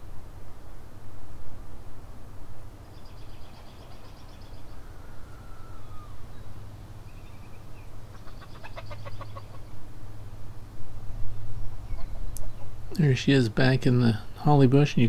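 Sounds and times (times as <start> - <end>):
low steady hum: 0.0 - 15.0
birds chattering: 2.9 - 9.8
bird whistle: 3.1 - 6.5
chickens clucking: 8.1 - 9.8.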